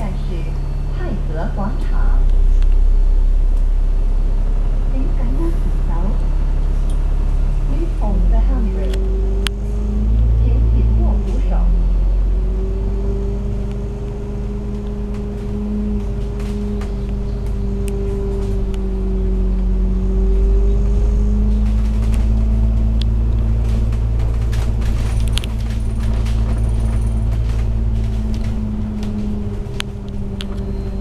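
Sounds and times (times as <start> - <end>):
bus engine drone: 0.0 - 31.0
low rumble: 0.0 - 31.0
interior fittings rattling: 21.6 - 30.6.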